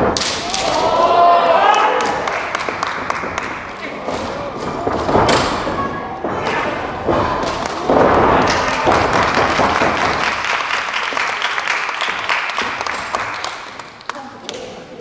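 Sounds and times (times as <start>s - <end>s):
crowd shouts: 0.4s - 2.3s
crowd reacting: 0.4s - 2.8s
scattered clapping: 1.7s - 4.2s, 7.1s - 14.7s.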